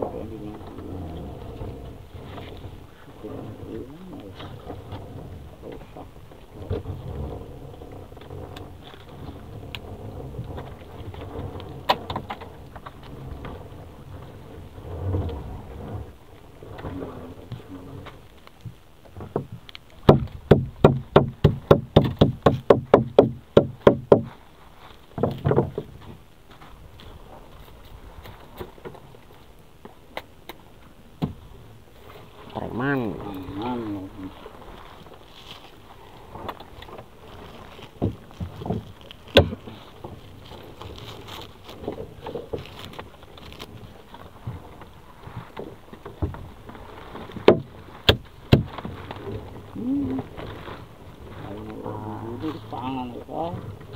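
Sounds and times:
knocks on boat hull: 19.2 - 24.3, 47.4 - 48.7
net and tarp rustling: 24.2 - 29.6, 32.2 - 53.9.

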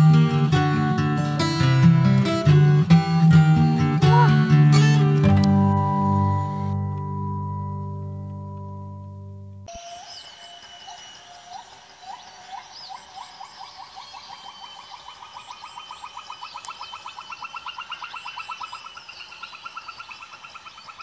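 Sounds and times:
animal upslurred call: 4.0 - 4.6
high-pitched ringing: 9.7 - 12.1.

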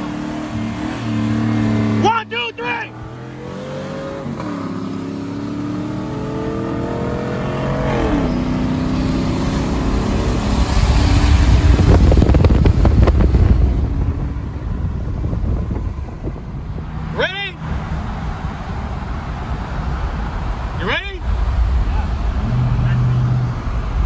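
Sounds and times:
pickup engines at full throttle: 0.0 - 24.0
wind buffeting on microphone: 9.7 - 17.1.

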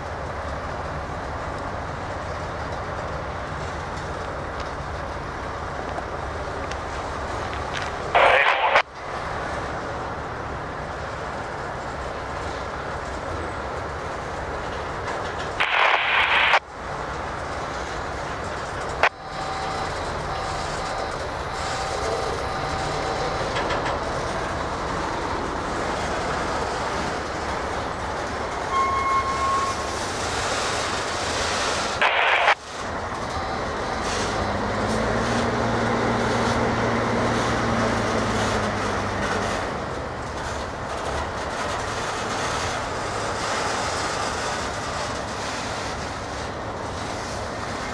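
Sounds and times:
train wheels rumbling on rails: 0.0 - 8.2, 8.8 - 47.9
louder bursts of noise: 6.4 - 9.6, 15.3 - 16.8, 19.0 - 46.2.

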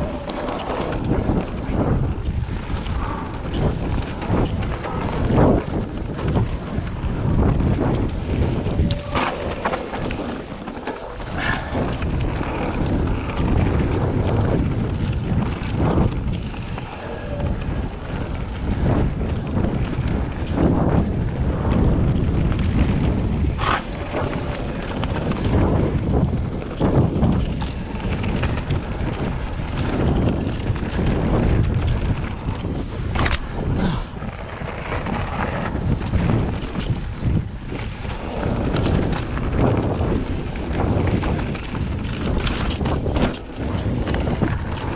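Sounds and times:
bike knocking and rattling: 0.0 - 44.9
tyres rolling over gravel: 0.0 - 44.9
wind buffeting microphone: 0.0 - 44.9.

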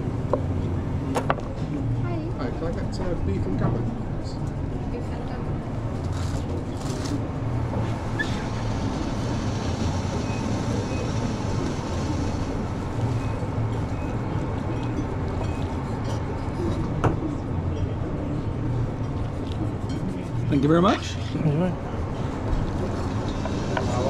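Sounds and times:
kitchen machinery humming: 5.8 - 17.9, 19.6 - 24.0.

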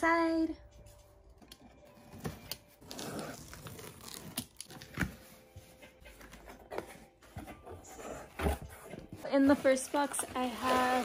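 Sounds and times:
cardboard flaps tearing and rustling: 2.8 - 5.1, 9.8 - 11.0.

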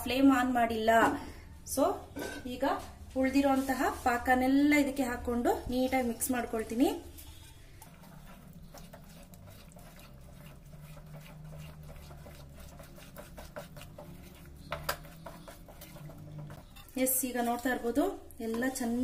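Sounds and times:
spatula scraping sticky mixture: 5.3 - 19.0.

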